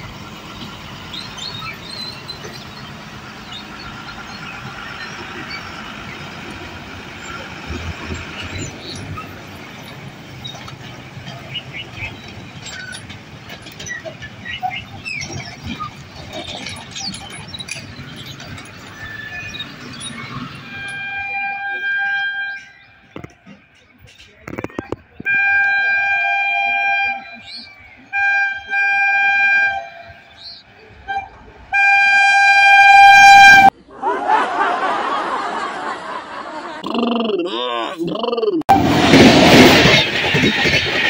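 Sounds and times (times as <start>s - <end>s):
heavy truck passing over tracks: 0.0s - 21.6s, 38.7s - 41.0s
bus passing: 0.0s - 36.8s
drawn-out high squeal: 12.0s - 23.1s.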